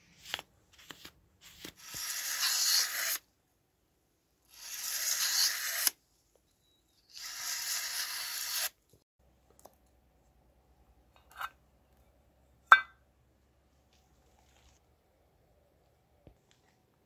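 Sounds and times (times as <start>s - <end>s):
knife slicing through paper: 0.2s - 3.2s
metallic lid pop with ring: 12.7s - 13.0s.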